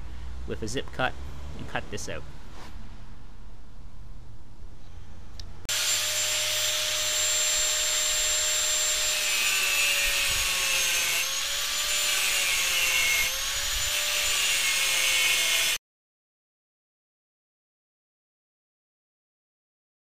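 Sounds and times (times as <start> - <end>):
angle grinder cutting steel: 5.7 - 15.8.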